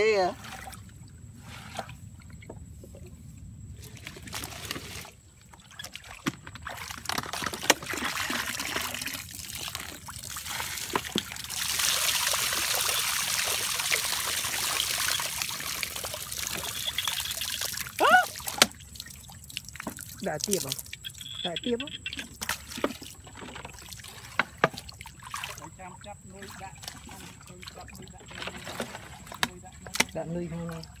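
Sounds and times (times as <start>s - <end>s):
water pouring into plastic bucket: 3.9s - 21.1s.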